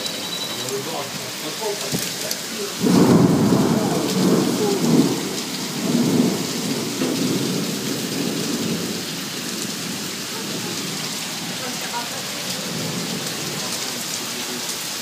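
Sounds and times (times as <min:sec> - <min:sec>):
heavy rain: 0:00.0 - 0:15.0
thunder rumbling: 0:02.7 - 0:14.0.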